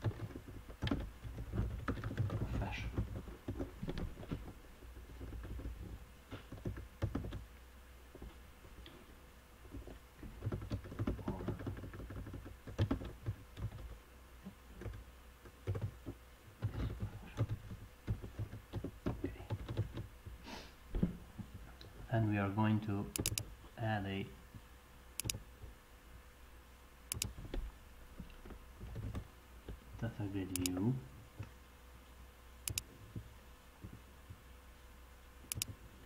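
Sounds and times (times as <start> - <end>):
keyboard typing: 0.0 - 4.1, 6.5 - 7.4, 10.4 - 13.9, 15.6 - 16.0, 16.6 - 20.0, 23.2 - 23.4, 30.5 - 30.8, 35.5 - 35.7
low steady hum: 0.0 - 36.0.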